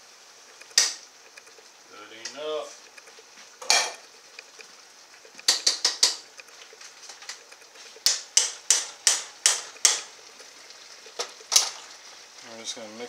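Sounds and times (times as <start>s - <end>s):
can knocking on pan: 5.4s - 6.3s, 8.0s - 10.1s.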